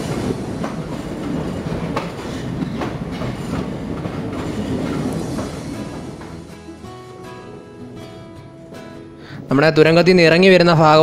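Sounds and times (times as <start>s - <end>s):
wheels clicking on rails: 0.0s - 6.5s
train coaches rumbling in tunnel: 0.0s - 8.0s.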